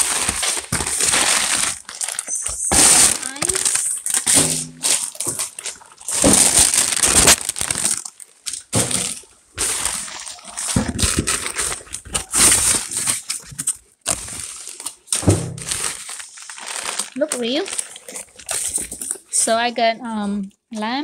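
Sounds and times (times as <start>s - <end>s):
foil liner and cardboard crinkling: 0.0s - 19.6s.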